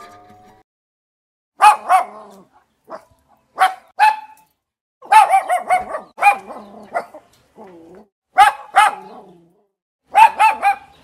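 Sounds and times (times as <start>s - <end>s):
small dog barking: 1.6s - 7.3s, 8.3s - 9.4s, 10.1s - 11.0s.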